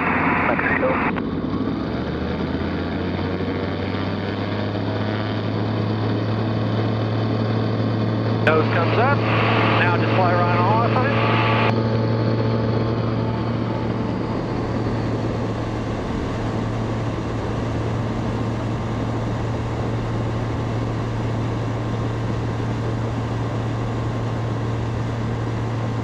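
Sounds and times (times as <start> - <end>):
airplane engine drone: 0.0 - 26.0
broad rush of noise: 8.4 - 11.8.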